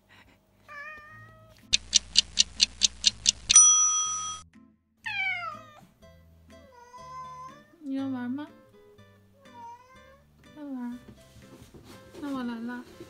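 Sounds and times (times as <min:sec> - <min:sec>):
quick ticks: 0:01.7 - 0:03.6
bright bell ding: 0:03.5 - 0:04.4
cat meowing: 0:05.0 - 0:05.9, 0:09.4 - 0:10.2.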